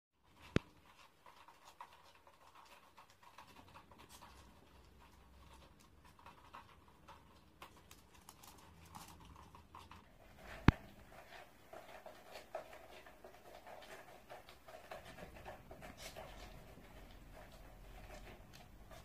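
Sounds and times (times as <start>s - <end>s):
animals scuffling on wooden floor: 0.3s - 19.0s.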